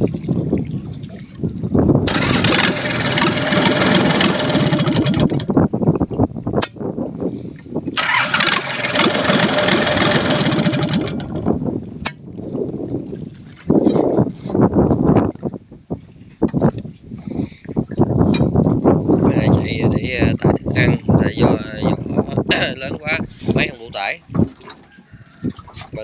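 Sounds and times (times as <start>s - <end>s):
diesel boat engine revving: 2.1s - 5.6s, 8.0s - 11.6s.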